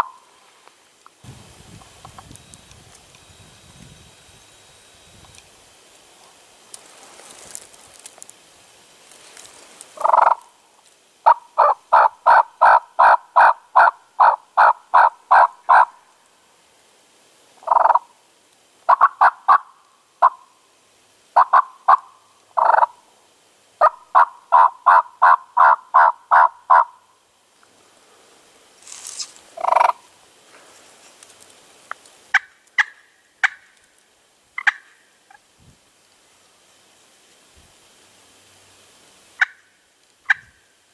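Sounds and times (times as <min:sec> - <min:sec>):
turkey yelping: 0:11.3 - 0:15.9, 0:21.4 - 0:22.9, 0:23.8 - 0:27.0.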